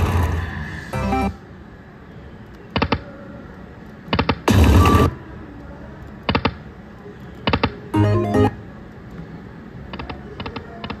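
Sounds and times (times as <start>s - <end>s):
slot machine reel ticks: 8.0s - 8.6s
slot machine jingle: 8.0s - 8.7s.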